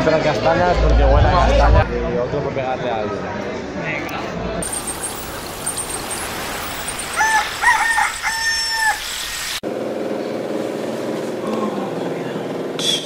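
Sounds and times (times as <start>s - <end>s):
steady hiss: 4.6s - 9.6s
rooster crowing: 6.8s - 9.6s.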